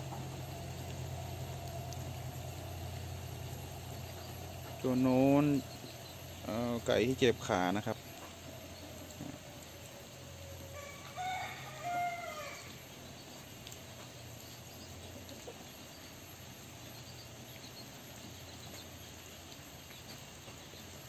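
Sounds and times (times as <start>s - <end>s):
rooster crowing: 10.2s - 12.9s.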